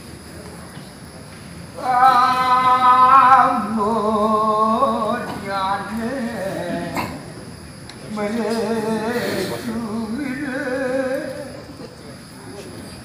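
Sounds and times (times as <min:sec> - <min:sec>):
person singing with vibrato: 0:01.8 - 0:07.4, 0:08.0 - 0:11.8.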